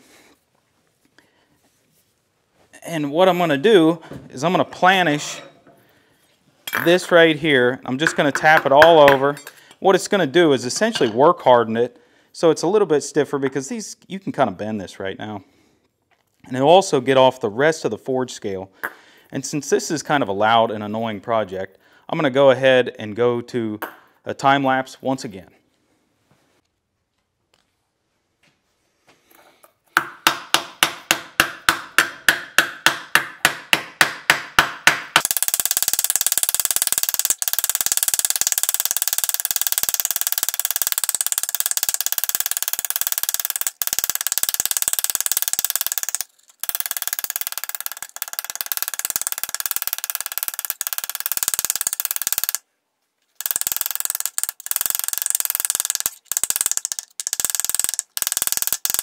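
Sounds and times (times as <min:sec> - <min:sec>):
hammer tapping sheet metal: 0:08.0 - 0:09.5, 0:30.0 - 0:36.0.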